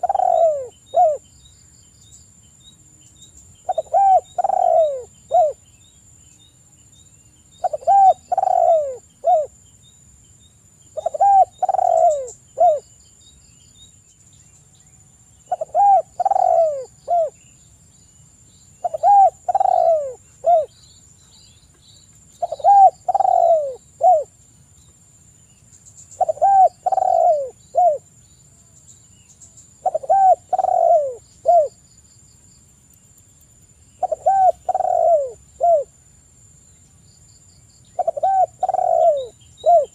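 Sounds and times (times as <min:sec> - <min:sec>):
dove cooing: 0:00.0 - 0:01.2, 0:03.7 - 0:05.6, 0:07.6 - 0:09.6, 0:11.0 - 0:12.8, 0:15.5 - 0:17.4, 0:18.8 - 0:20.7, 0:22.4 - 0:24.3, 0:26.2 - 0:28.0, 0:29.8 - 0:31.7, 0:34.0 - 0:35.9, 0:38.0 - 0:39.9.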